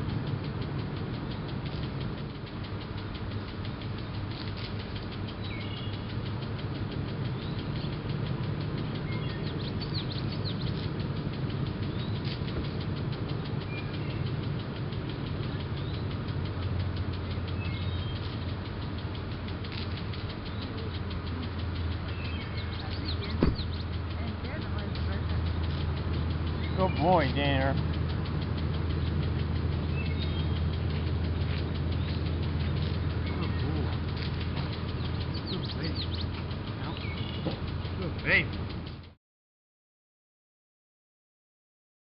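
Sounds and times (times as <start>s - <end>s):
boat engine running: 0.0s - 39.2s
sharp knock: 23.4s - 23.7s.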